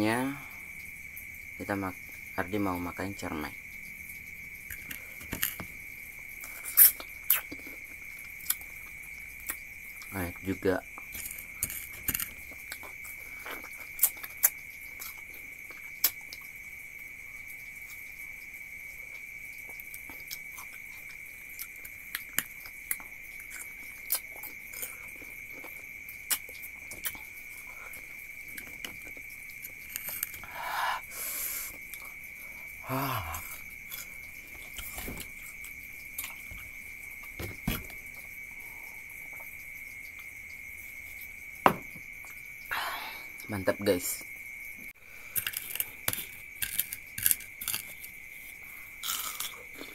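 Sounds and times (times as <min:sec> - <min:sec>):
high-pitched insect drone: 0:00.0 - 0:49.9
biting and chewing clicks: 0:11.0 - 0:16.5, 0:19.2 - 0:30.5, 0:45.3 - 0:48.2.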